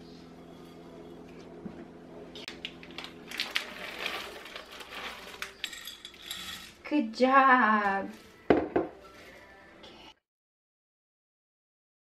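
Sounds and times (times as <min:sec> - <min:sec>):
snack bag crinkling: 0:02.6 - 0:06.1
almonds rustling into a bowl: 0:03.0 - 0:06.8.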